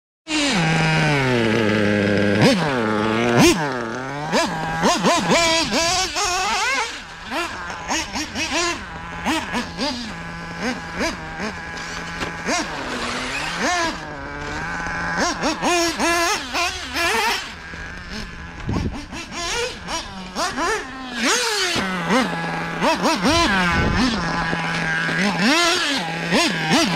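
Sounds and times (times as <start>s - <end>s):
model car engine revving: 0.3s - 26.9s.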